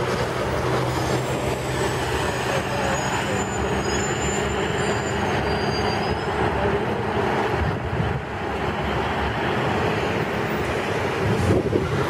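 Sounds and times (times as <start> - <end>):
bus diesel engine passing: 0.0 - 12.0
thin high whistle: 2.8 - 6.4.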